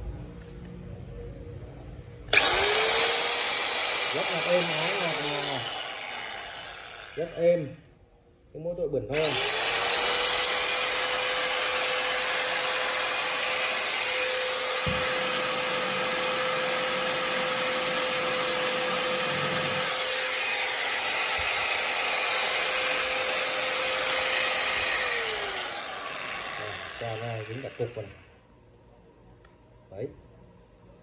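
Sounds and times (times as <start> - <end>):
power tool motor whine: 2.3 - 7.4, 9.2 - 28.3.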